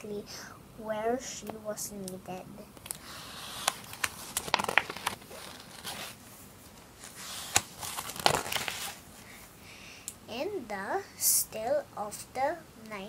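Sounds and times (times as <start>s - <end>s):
paper page rustling and crackling: 2.8s - 9.0s.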